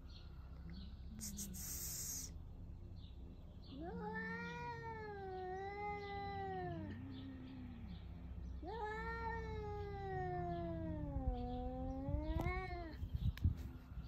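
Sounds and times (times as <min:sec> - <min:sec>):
cat hissing: 0:01.2 - 0:02.4
cat caterwauling: 0:03.7 - 0:07.8, 0:08.6 - 0:13.0
cat growling: 0:03.8 - 0:13.0.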